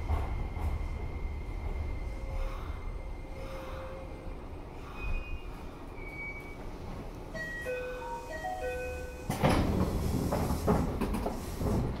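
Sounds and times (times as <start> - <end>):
train car rumble: 0.0 - 12.0
electronic chime melody: 7.4 - 9.2.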